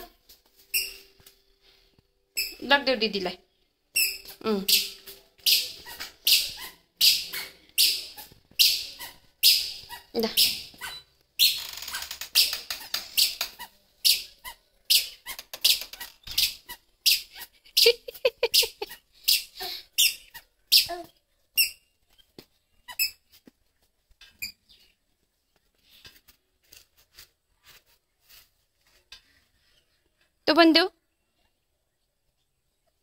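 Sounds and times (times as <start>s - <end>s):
squeaky sandals squeaking: 0.0s - 1.3s, 2.3s - 2.8s, 3.9s - 23.5s, 24.2s - 25.0s.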